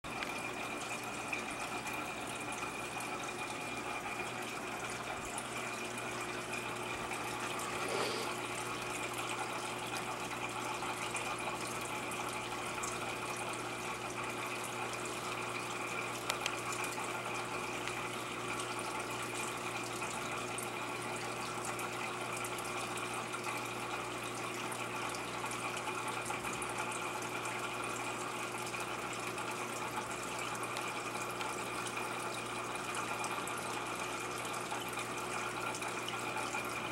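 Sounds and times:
electrical pump hum: 0:00.0 - 0:36.9
moving water: 0:00.1 - 0:36.9.

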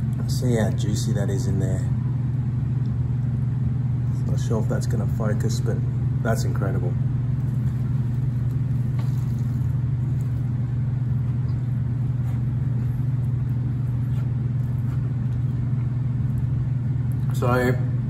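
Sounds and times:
steady low hum: 0:00.0 - 0:18.0
crunchy chewing: 0:07.3 - 0:17.3.

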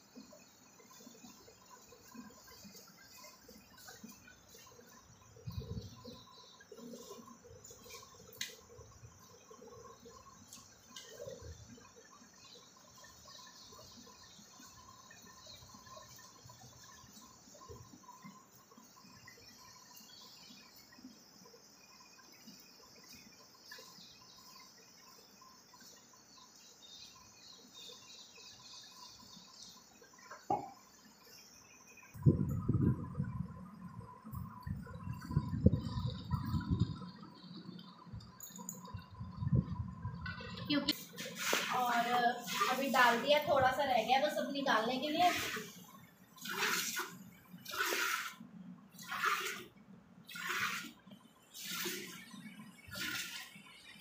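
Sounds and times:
milk squirting into a bucket: 0:46.4 - 0:49.7, 0:50.3 - 0:52.2, 0:52.9 - 0:53.6.

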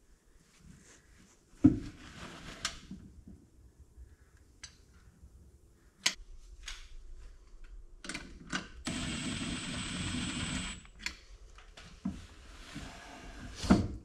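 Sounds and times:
power tool motor running: 0:08.9 - 0:10.9.

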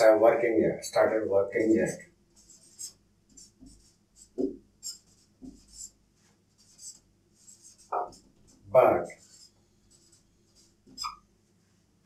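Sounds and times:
marker scratching on whiteboard: 0:00.0 - 0:11.3
marker squeaks: 0:02.5 - 0:06.0, 0:09.2 - 0:11.3.

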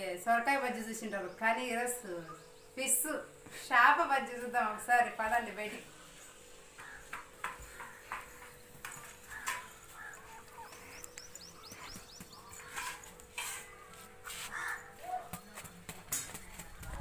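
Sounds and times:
birds calling: 0:05.9 - 0:17.0.

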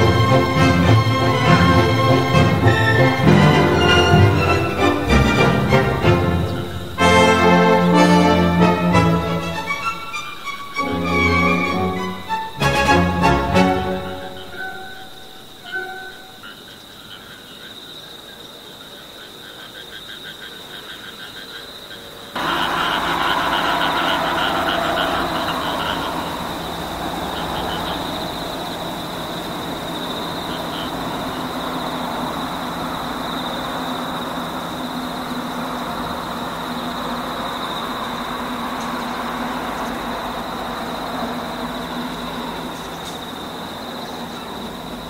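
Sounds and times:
rhythmic pulsed calls: 0:00.0 - 0:16.9, 0:22.4 - 0:45.0
broad steady hiss: 0:00.0 - 0:45.0
frogs and insects chorus: 0:00.0 - 0:45.0.

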